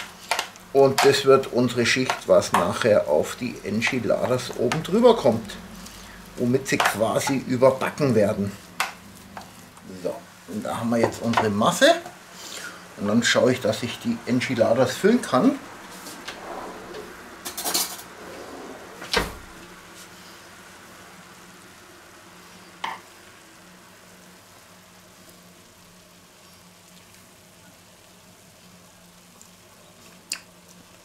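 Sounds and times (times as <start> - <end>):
faint steady hiss: 0.0 - 31.0
low hum: 15.6 - 19.9.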